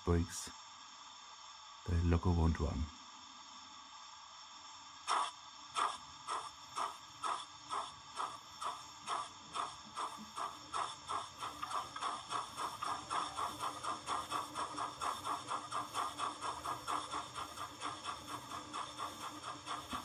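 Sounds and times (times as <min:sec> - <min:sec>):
faint steady hum: 0:00.0 - 0:20.0
model train steam chuffs: 0:05.1 - 0:20.0.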